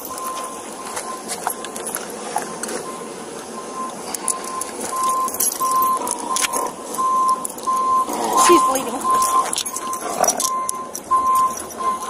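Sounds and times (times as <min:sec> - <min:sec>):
faint high beep pulses: 0:00.0 - 0:01.3, 0:02.4 - 0:12.0
steady background noise: 0:00.0 - 0:12.0
scattered clicks: 0:03.8 - 0:12.0.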